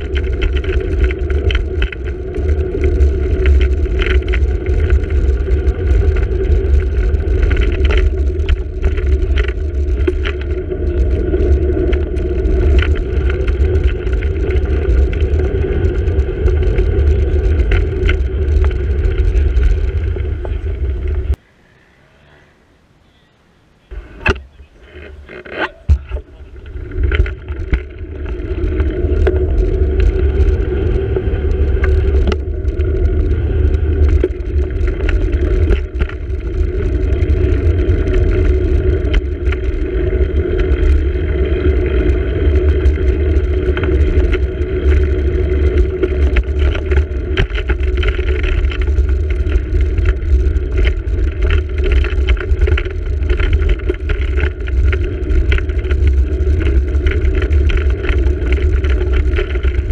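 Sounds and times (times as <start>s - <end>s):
small clicks and rattles: 0.0s - 21.4s, 24.2s - 59.9s
wind buffeting: 0.0s - 21.4s, 23.9s - 59.9s
road rumble: 0.0s - 59.9s.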